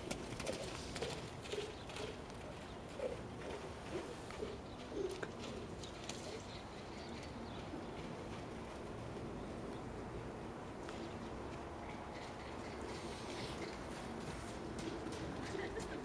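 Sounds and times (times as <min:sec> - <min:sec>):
horse hoofbeats on wet sand: 0:13.6 - 0:16.0.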